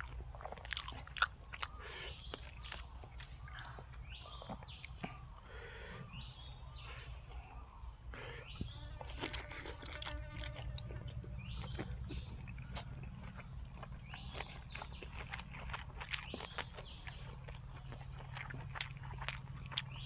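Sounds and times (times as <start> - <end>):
chewing and crunching food: 0.0 - 20.0
low steady hum: 0.0 - 20.0.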